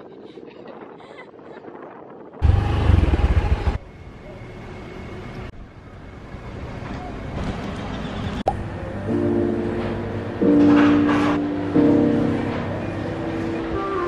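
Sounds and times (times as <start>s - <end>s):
wind noise: 0.0s - 3.9s
street traffic: 2.4s - 14.0s.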